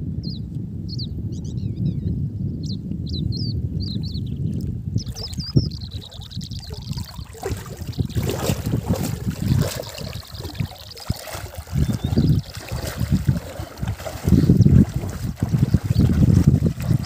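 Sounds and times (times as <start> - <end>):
wind buffeting microphone: 0.0 - 17.0
water splashing around wading legs: 5.0 - 17.0.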